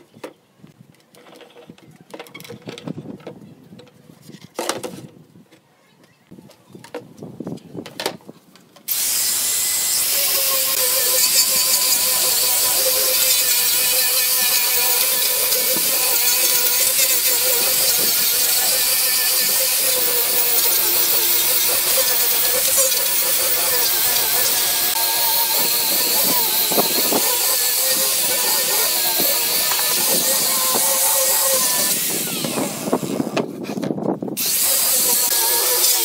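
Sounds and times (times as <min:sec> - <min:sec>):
angle grinder sanding wood: 0:08.9 - 0:33.8, 0:34.4 - 0:36.0.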